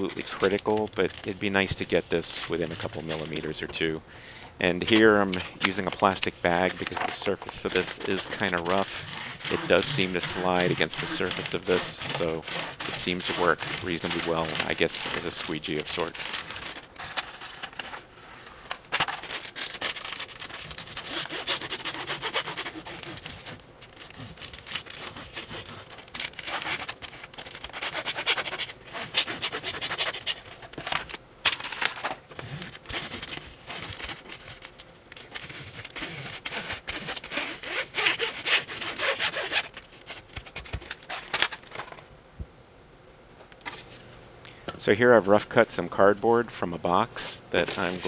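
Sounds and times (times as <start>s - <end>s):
plastic bag rubbing on heater pad: 0.0s - 3.8s, 4.6s - 30.9s, 32.0s - 41.4s, 47.5s - 48.0s
adhesive liner peeling: 4.9s - 17.9s, 19.2s - 30.8s, 32.4s - 41.5s.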